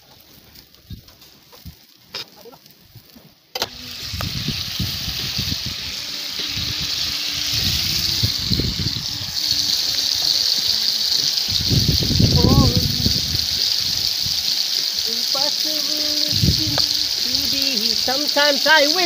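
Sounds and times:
wind on microphone: 3.7 - 14.5, 16.2 - 17.8.

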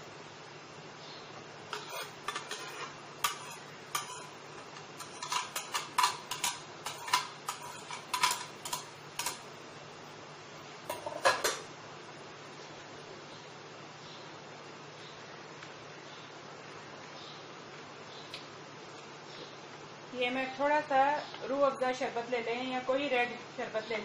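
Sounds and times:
metal spoon clinking on dishes: 1.7 - 9.4, 10.9 - 11.6.

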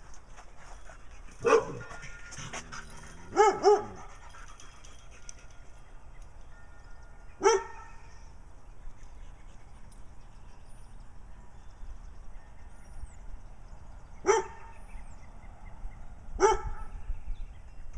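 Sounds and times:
dog barking: 1.4 - 1.9, 3.3 - 4.0, 7.4 - 8.0, 14.2 - 14.6, 16.4 - 16.9.

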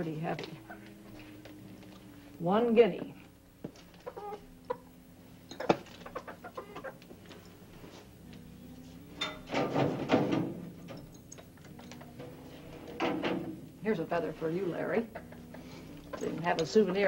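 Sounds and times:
chicken clucking: 4.0 - 4.9, 5.6 - 7.1
knocks and clatter from wooden cage: 9.5 - 11.1, 12.9 - 13.6.

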